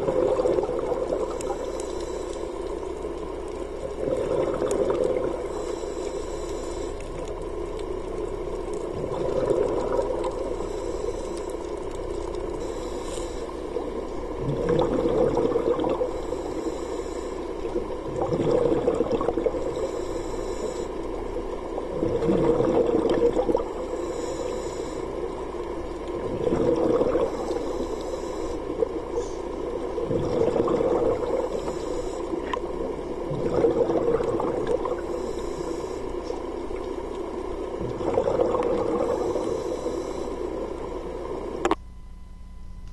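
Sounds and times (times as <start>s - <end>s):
exhaled air bubbling: 0.0s - 41.8s
regulator inhale hiss: 1.2s - 3.2s, 5.2s - 7.6s, 10.3s - 14.3s, 16.0s - 18.1s, 19.5s - 21.5s, 23.6s - 26.0s, 27.2s - 29.9s, 31.2s - 33.0s, 34.7s - 37.6s, 38.8s - 41.6s.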